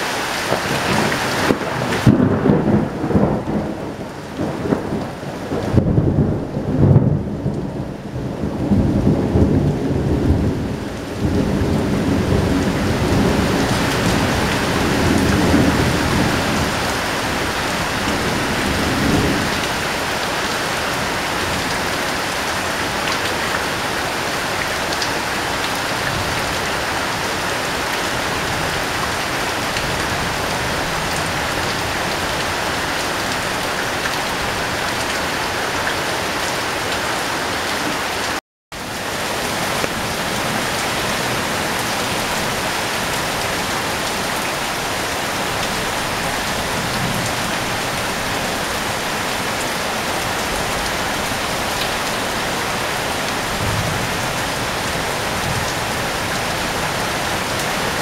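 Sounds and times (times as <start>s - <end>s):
heavy rain on a metal roof: 0.0s - 58.0s
thunder rumble: 0.5s - 20.2s.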